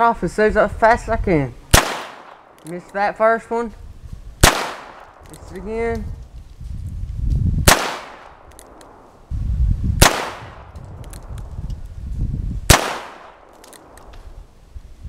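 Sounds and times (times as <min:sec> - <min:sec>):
low rumble: 0:03.7 - 0:15.0.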